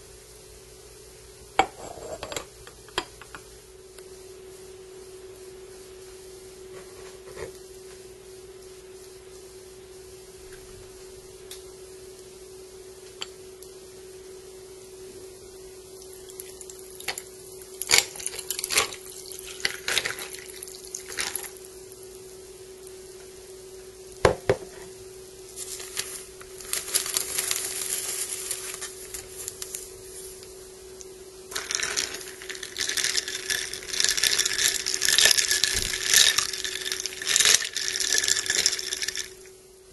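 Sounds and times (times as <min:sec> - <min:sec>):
steady low hum: 0:00.0 - 0:39.9
tea pouring over ice: 0:16.1 - 0:21.6, 0:31.5 - 0:39.5
spoon stirring ice in glass: 0:31.5 - 0:39.5.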